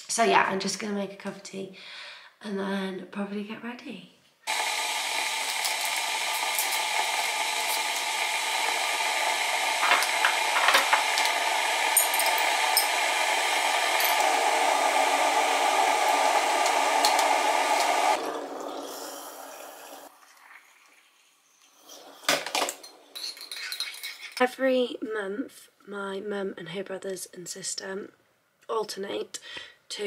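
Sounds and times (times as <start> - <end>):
kettle switching off: 4.5 - 20.0
electric kettle boiling: 4.5 - 20.9
jar and spoon clinking: 12.0 - 13.0
water pouring: 18.1 - 22.3.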